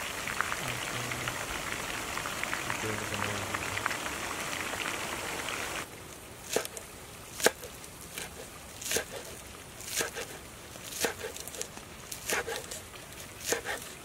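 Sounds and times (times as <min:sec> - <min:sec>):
knife chopping on wooden board: 0:07.4 - 0:09.3, 0:09.9 - 0:11.6, 0:12.3 - 0:12.8, 0:13.4 - 0:13.9.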